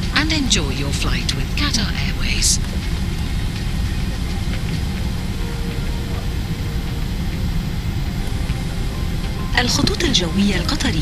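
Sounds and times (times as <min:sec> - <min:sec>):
airliner cabin rumble: 0:00.0 - 0:11.0.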